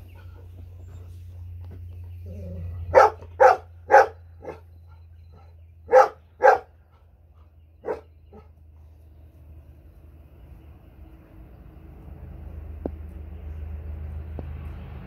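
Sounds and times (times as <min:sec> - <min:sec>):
steady low hum: 0:00.0 - 0:15.0
dog barking: 0:02.8 - 0:06.8, 0:07.8 - 0:08.5.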